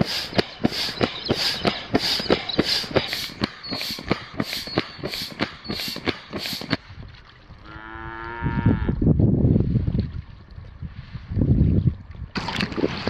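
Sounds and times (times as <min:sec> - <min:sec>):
air pump hissing: 0:00.0 - 0:06.8
wind on microphone: 0:00.0 - 0:13.0
cow mooing: 0:07.6 - 0:09.0.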